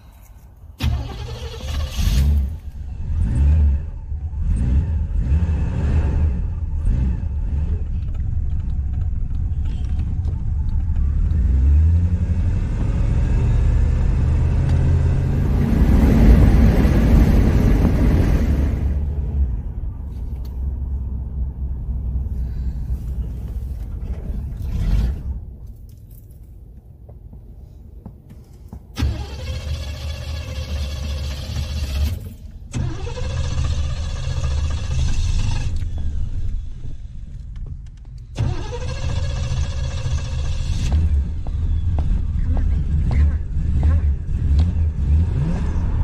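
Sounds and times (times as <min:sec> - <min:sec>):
car engine running and revving: 0:02.0 - 0:25.6, 0:29.3 - 0:46.0.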